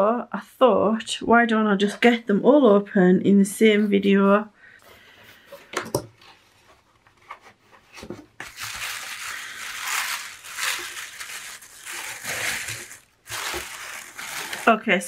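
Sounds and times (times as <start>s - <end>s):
tissue paper rustling: 7.2s - 15.0s.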